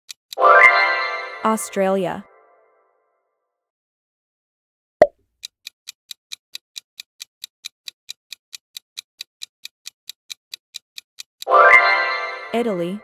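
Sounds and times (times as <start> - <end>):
countdown timer ticking: 5.4 - 12.8.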